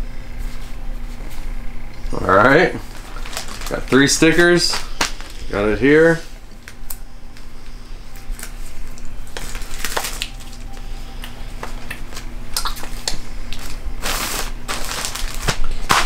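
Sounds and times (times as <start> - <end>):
plastic bag crinkling: 2.8 - 7.5, 8.2 - 11.0, 11.6 - 16.0.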